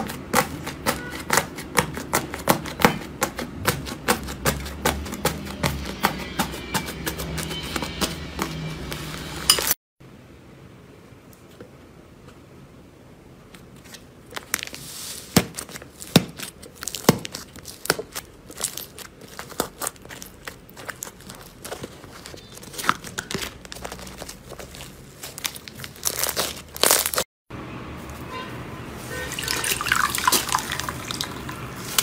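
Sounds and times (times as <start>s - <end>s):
slime crackling and crinkling: 13.7s - 27.3s.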